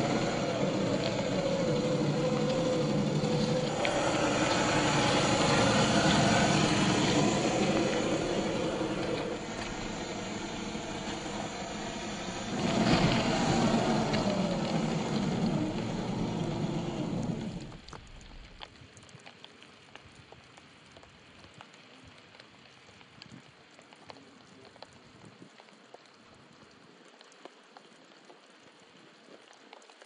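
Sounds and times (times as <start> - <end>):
rc car motor and gears whining: 0.0 - 17.8
light rain patter: 0.0 - 30.0.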